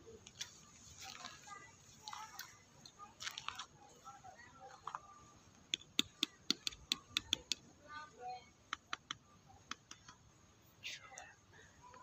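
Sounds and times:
sharp clicks: 5.7s - 7.6s, 8.7s - 10.2s.

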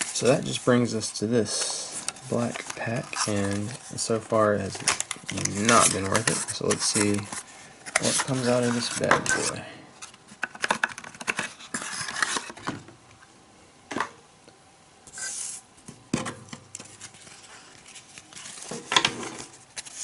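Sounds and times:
cards rustling: 0.0s - 12.7s, 16.8s - 20.0s
wrapper crinkling and tearing: 4.6s - 7.4s.

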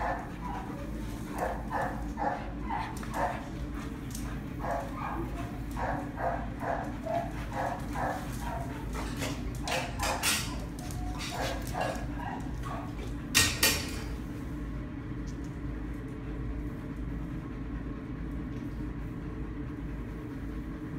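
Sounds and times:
dogs yipping and whining: 0.0s - 3.8s, 4.6s - 13.2s.

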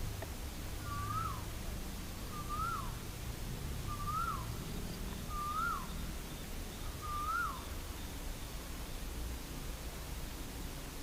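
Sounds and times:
bird whistled call: 0.8s - 1.4s, 2.3s - 2.9s, 3.9s - 4.5s, 5.2s - 6.1s, 6.8s - 7.7s.

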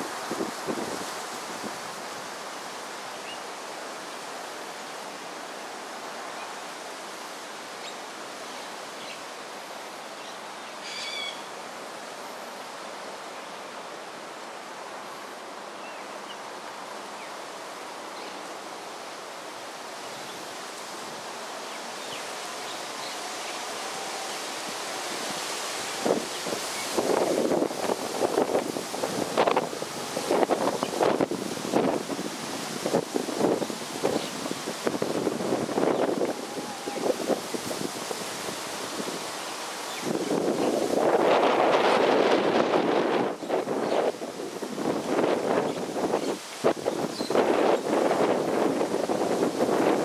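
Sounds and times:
outdoor background hiss: 0.0s - 50.0s
faint bird chirps: 10.2s - 11.5s
short high bird call: 10.8s - 11.4s.

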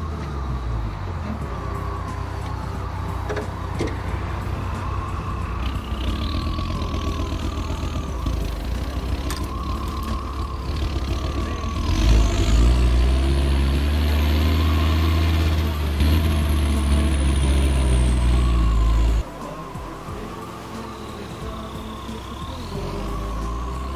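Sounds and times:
faint high whine: 0.0s - 23.9s
vehicle engine idling and revving: 0.0s - 23.9s.

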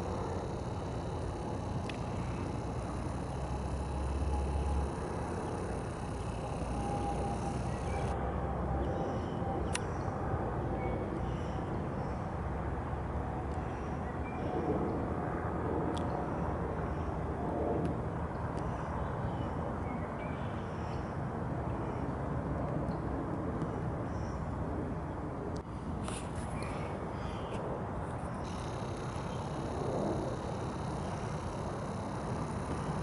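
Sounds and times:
sharp clicks: 0.0s - 8.2s, 28.4s - 33.0s
low outdoor rumble: 0.0s - 8.9s, 24.8s - 33.0s.

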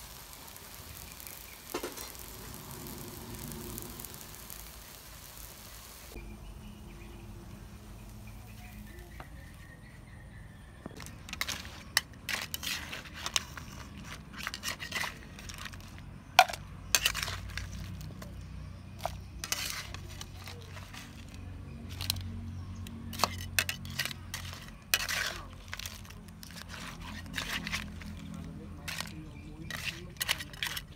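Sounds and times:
metal spatula scraping a wok: 10.9s - 30.9s.

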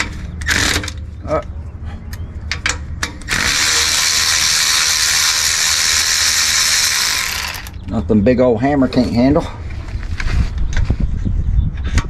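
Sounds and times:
cordless power tool running: 3.3s - 7.8s
power tool clicks: 3.3s - 7.8s.

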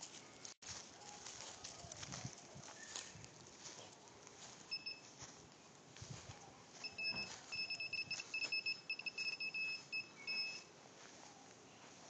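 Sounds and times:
high-pitched electronic beeps: 6.8s - 10.7s.

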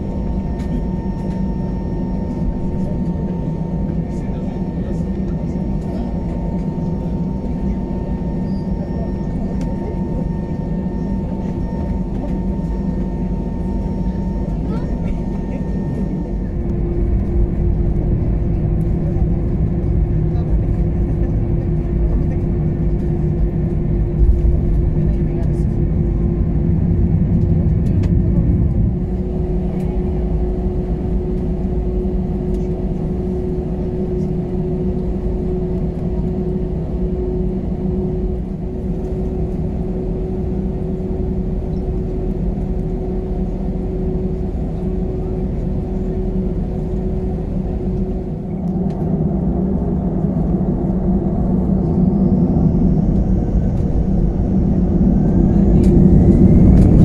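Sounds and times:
jet engines rumbling: 0.0s - 57.0s
steady cabin hum: 0.0s - 57.0s
engine whine rising in pitch: 48.0s - 57.0s.

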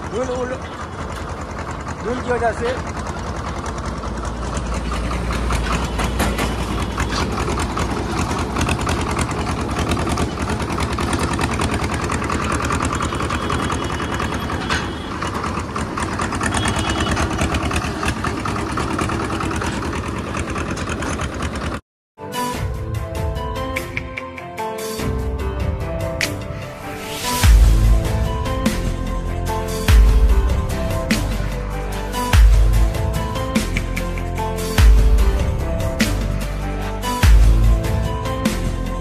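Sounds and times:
tractor diesel engine chugging: 0.0s - 21.8s.

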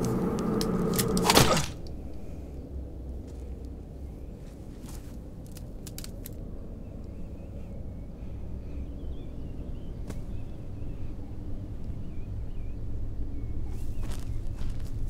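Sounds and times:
sharp clicks and rattles: 0.0s - 2.2s
birds chirping: 6.7s - 15.0s.

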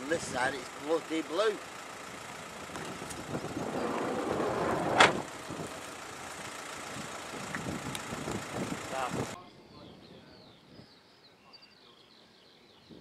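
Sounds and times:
motor vehicle passing: 0.0s - 9.4s.

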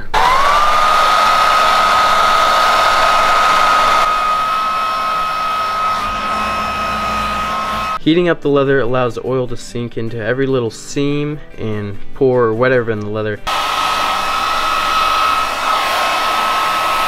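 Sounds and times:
hair dryer running: 0.0s - 8.0s, 13.5s - 17.0s.

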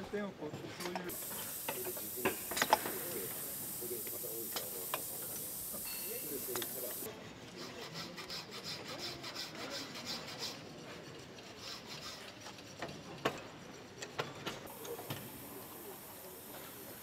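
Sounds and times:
faint steady hiss: 1.0s - 7.1s, 14.7s - 17.0s
hand file strokes on metal: 1.2s - 14.1s
sharp metallic clicks: 4.0s - 7.1s.

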